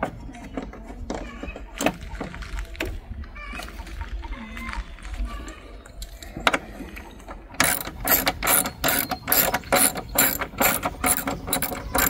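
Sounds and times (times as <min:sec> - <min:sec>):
socket ratchet clicking: 0:07.6 - 0:12.0.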